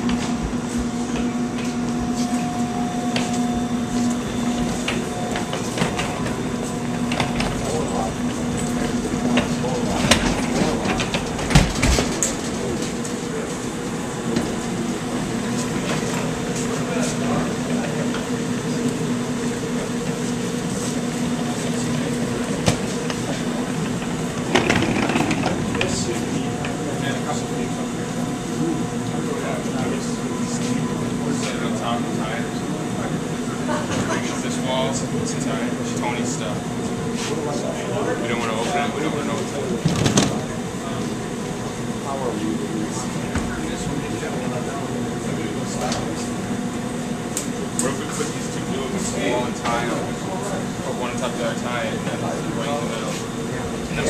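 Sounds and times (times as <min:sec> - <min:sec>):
steady mechanical hum: 0:00.0 - 0:54.0
wheeled trunks rolling on concrete: 0:22.8 - 0:26.2.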